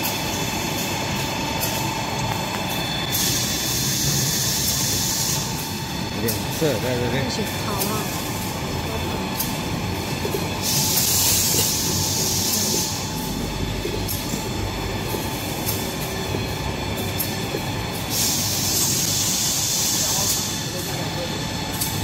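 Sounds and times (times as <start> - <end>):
machinery clatter and hum: 0.0 - 22.0
loud hissing bursts: 18.1 - 20.5.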